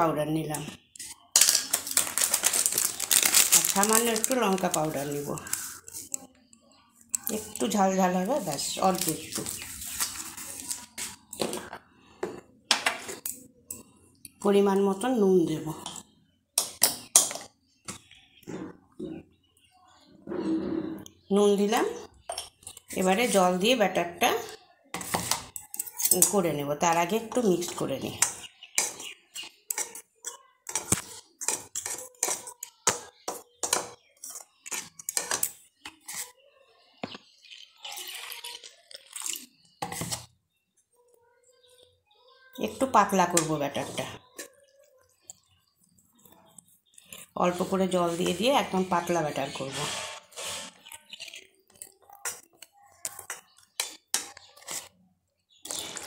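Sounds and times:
metal spoon clinking against bowl: 0:25.0 - 0:26.4, 0:29.7 - 0:35.6
spoon scraping ceramic bowl: 0:28.2 - 0:36.4, 0:37.0 - 0:40.3, 0:49.5 - 0:55.0.

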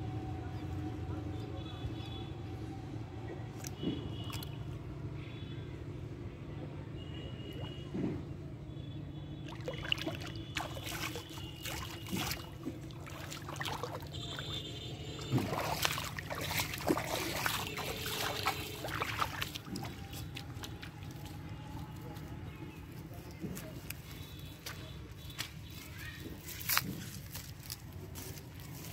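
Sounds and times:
shallow water splashing: 0:07.2 - 0:08.4, 0:09.3 - 0:22.0.

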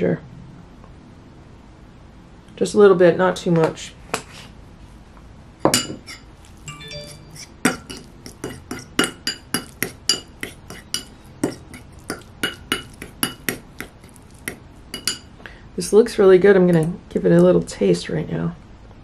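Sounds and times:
fork scraping a ceramic bowl: 0:05.8 - 0:15.3.

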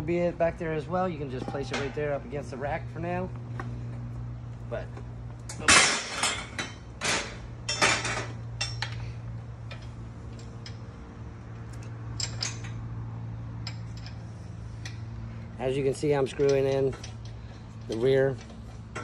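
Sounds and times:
metal clanks and rattles: 0:01.2 - 0:02.2, 0:05.4 - 0:19.0.

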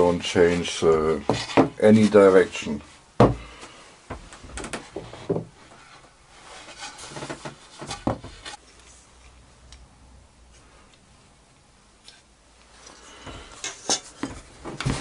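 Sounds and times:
wooden boards knocking: 0:03.2 - 0:03.5
faint rubbing: 0:04.9 - 0:09.0.

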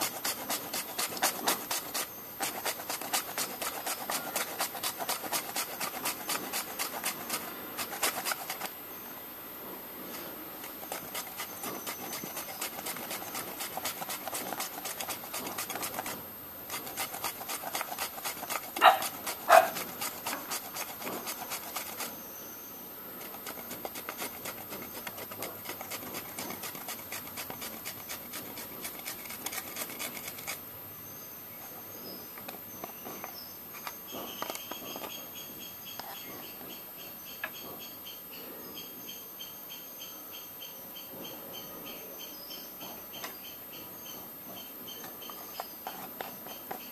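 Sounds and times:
potato rasping on grater: 0:00.0 - 0:08.7, 0:10.2 - 0:22.3, 0:23.2 - 0:30.6.

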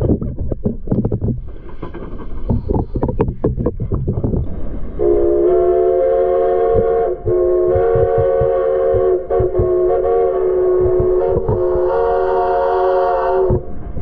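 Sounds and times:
knocking and clatter: 0:00.0 - 0:04.5, 0:07.8 - 0:09.8, 0:10.8 - 0:11.6
steam locomotive chime whistle: 0:05.0 - 0:13.7.

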